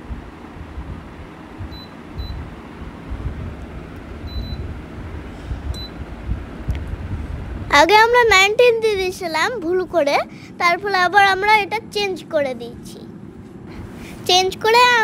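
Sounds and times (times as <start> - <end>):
low rumble: 0.6 - 7.8
short high control panel beeps: 4.3 - 4.6.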